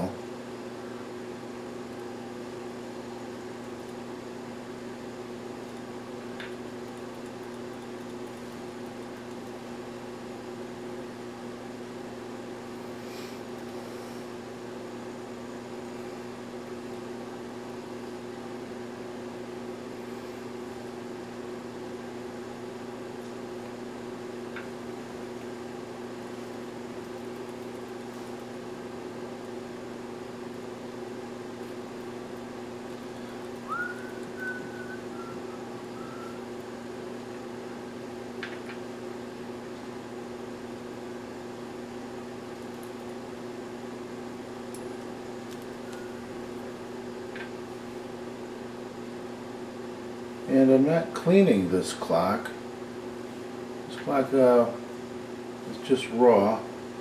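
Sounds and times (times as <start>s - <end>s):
low room hum: 0.0s - 57.0s
high whistle-like squeak: 33.7s - 36.4s.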